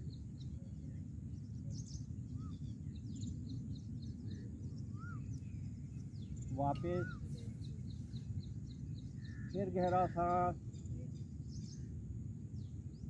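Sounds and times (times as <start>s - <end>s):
small birds calling: 0.0s - 13.0s
steady low rumble: 0.0s - 13.0s
high bird chirps: 2.3s - 11.9s.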